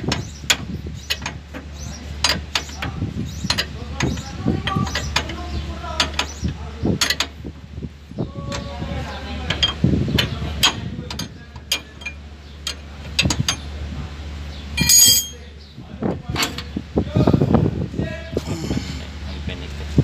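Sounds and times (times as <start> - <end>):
metal tools clinking on steel: 9.5 - 13.7, 14.7 - 15.5.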